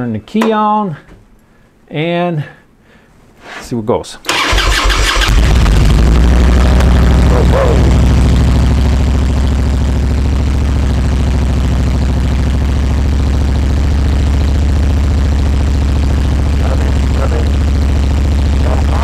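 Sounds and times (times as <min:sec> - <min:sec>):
motorcycle engine idling: 0:05.2 - 0:19.0.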